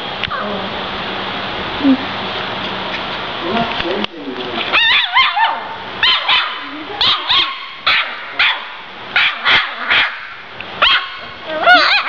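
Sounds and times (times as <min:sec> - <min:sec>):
puppy yipping and barking: 0:04.7 - 0:12.0.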